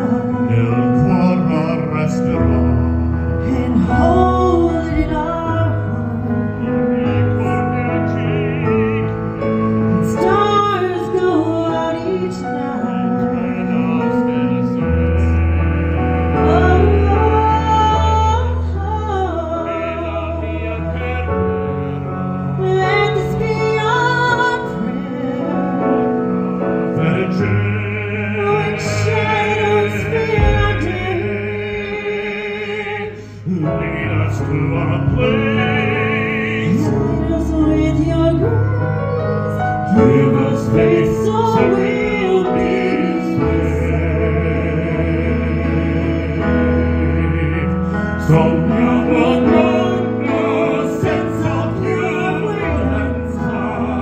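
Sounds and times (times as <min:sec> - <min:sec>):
live instrumental accompaniment: 0:00.0 - 0:54.0
man and woman singing duet: 0:00.0 - 0:54.0.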